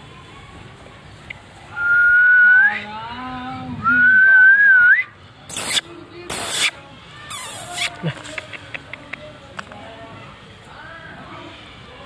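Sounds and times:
short hissing rustle: 5.5 - 8.4.

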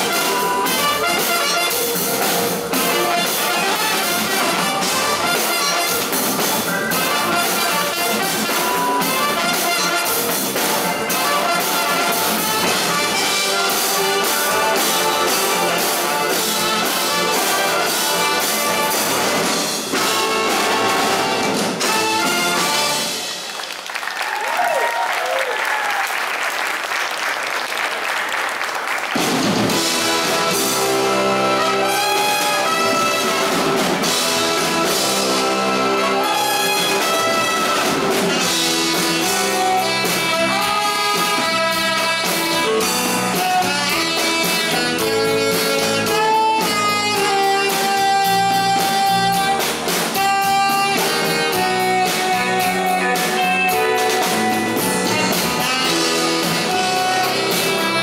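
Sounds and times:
brass band playing: 0.0 - 24.0, 28.8 - 58.0
audience applause: 23.0 - 29.7.

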